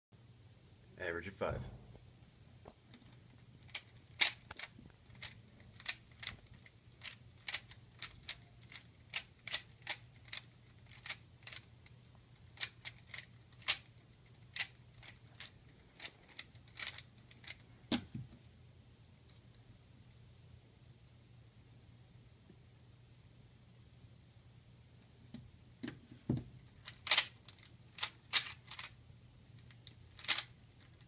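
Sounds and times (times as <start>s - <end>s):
puzzle cube clicking: 2.9s - 11.7s, 12.4s - 17.6s, 26.8s - 28.9s, 29.6s - 31.0s.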